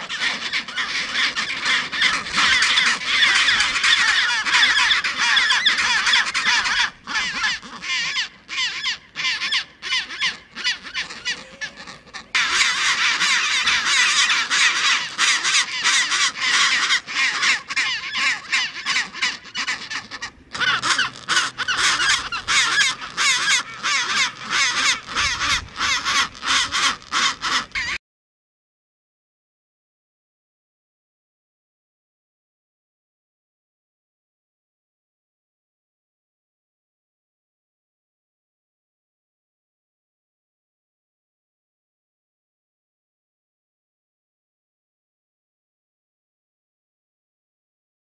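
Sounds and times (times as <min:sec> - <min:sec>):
penguins calling harshly: 0:00.0 - 0:28.0.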